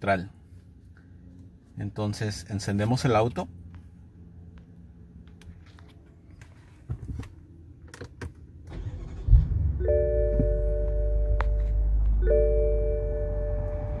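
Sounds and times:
car engine starting and idling: 2.3s - 14.0s
electronic chime tone: 9.8s - 11.6s, 12.2s - 14.0s.

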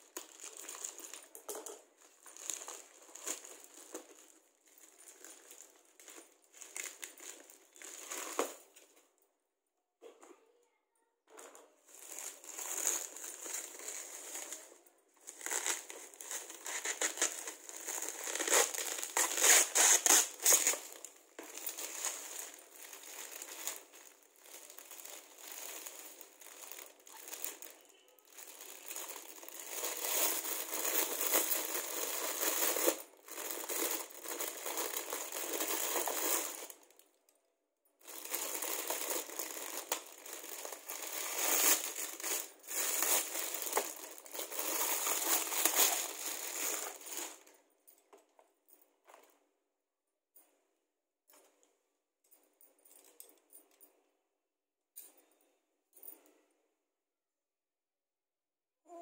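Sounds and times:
plastic packaging crinkling: 0.0s - 9.0s, 11.4s - 37.1s, 38.0s - 47.6s.

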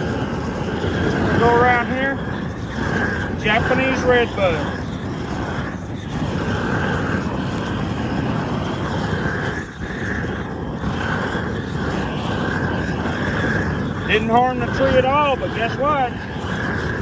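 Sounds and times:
weed torch flame rushing: 0.0s - 17.0s.

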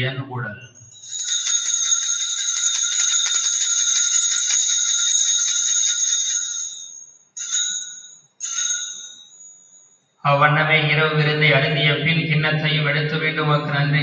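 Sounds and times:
altar bells shaken: 0.8s - 10.1s.

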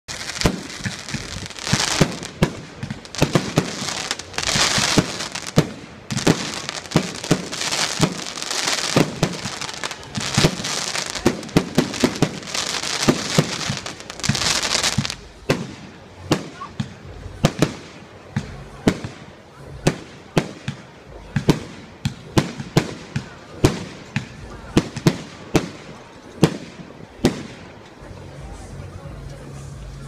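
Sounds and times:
crackling hiss of fireworks: 0.0s - 30.0s.

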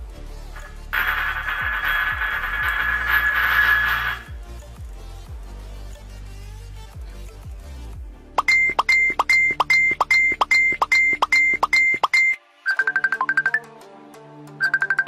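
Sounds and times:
electronic beeping: 0.6s - 4.4s, 8.4s - 13.7s, 14.6s - 15.0s
plinking ringtone jingle: 8.4s - 13.7s, 14.6s - 15.0s.

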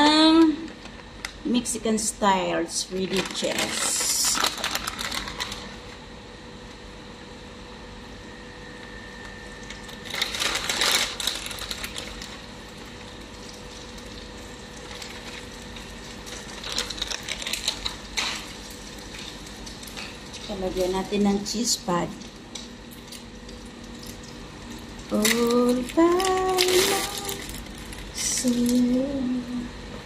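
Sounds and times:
plastic bag crinkling: 2.7s - 6.0s, 9.6s - 29.0s.

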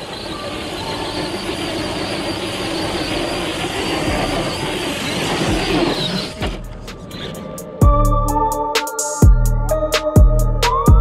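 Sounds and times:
electric motor whine: 0.0s - 6.8s.

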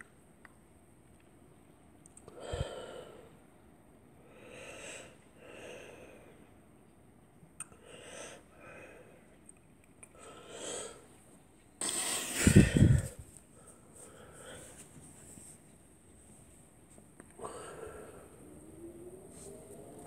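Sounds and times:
person breathing: 2.3s - 3.4s, 4.2s - 6.5s, 7.8s - 9.3s, 10.1s - 11.1s, 11.8s - 15.0s, 17.4s - 18.6s.

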